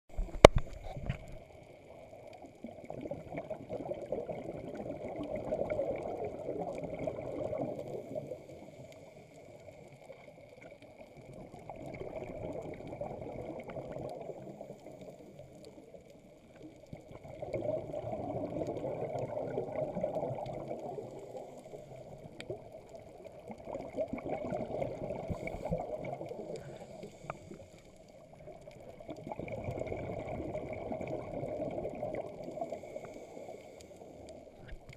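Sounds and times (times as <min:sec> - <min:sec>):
underwater bubbles gurgling: 0:00.1 - 0:34.9.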